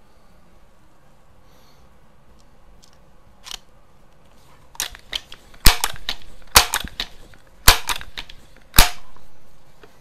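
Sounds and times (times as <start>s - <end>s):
air rifle clicks: 4.8s - 9.2s.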